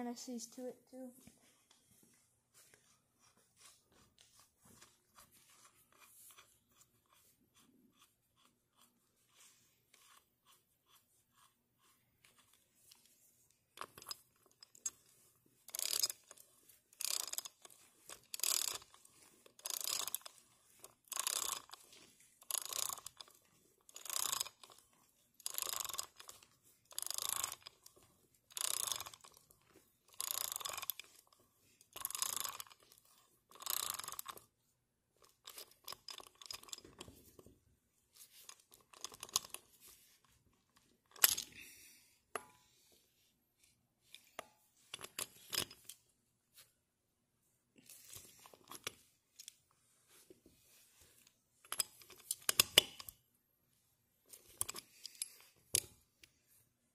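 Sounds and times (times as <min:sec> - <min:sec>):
ratchet wrench clicking: 0:15.7 - 0:16.4, 0:17.0 - 0:19.0, 0:19.6 - 0:20.4, 0:21.0 - 0:21.8, 0:22.4 - 0:23.3, 0:23.9 - 0:24.8, 0:25.4 - 0:26.3, 0:26.9 - 0:27.8, 0:28.5 - 0:29.4, 0:30.1 - 0:31.1, 0:32.0 - 0:32.8, 0:33.5 - 0:34.4.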